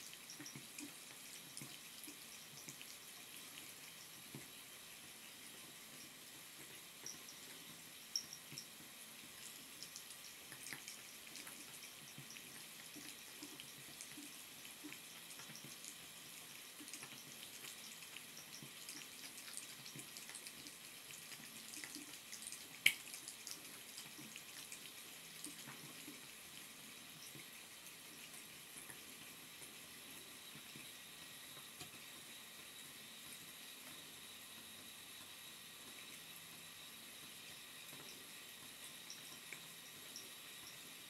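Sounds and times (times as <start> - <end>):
cat lapping water: 0.0 - 30.8
faucet dripping: 0.0 - 41.0.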